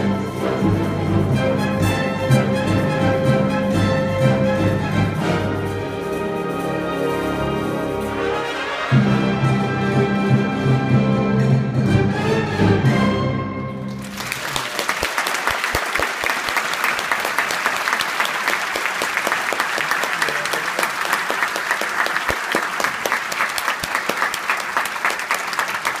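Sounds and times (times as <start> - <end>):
audience applauding: 13.9 - 26.0.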